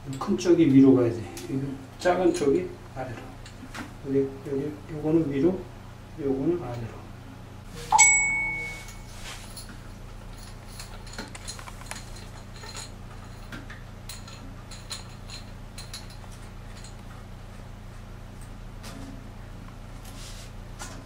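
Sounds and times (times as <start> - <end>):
steady low hum: 0.0 - 21.0
sharp ringing clink: 7.9 - 9.1.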